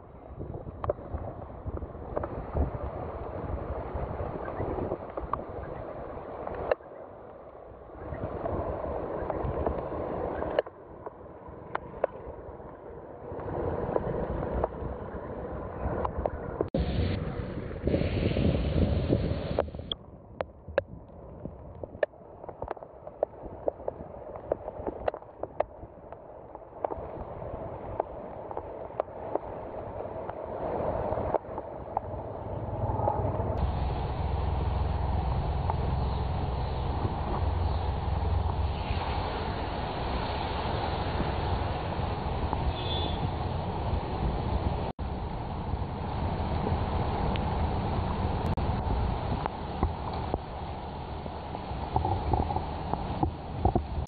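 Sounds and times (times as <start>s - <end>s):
wind rumbling on microphone: 0.0s - 54.0s
car tyres swishing through water: 8.0s - 20.0s, 21.5s - 54.0s
heavy rain pouring: 33.5s - 54.0s.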